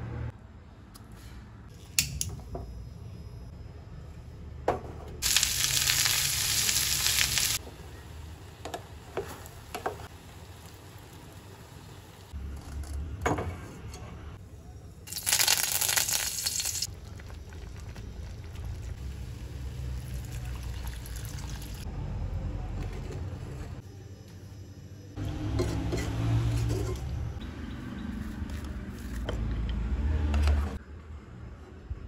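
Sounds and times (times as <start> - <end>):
food sizzling in hot oil: 5.2 - 8.6, 15.1 - 16.9.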